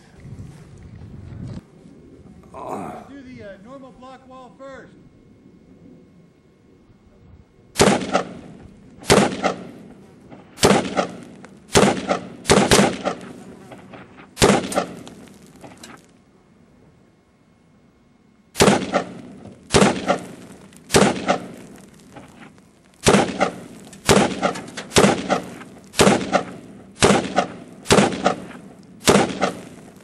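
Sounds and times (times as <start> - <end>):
rifle shots: 7.8 - 16.0, 18.6 - 30.0.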